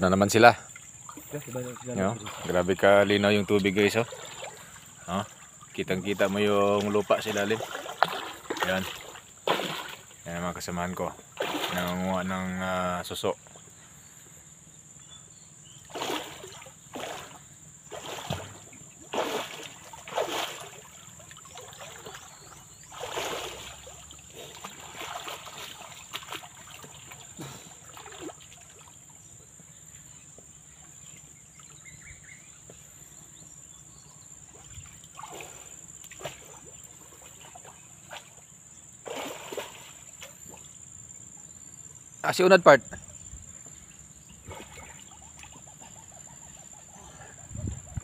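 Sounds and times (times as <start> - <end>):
water splashing: 0.0 - 12.7, 15.7 - 30.0, 34.4 - 40.8, 44.4 - 46.0
low trickling hiss: 0.0 - 44.4.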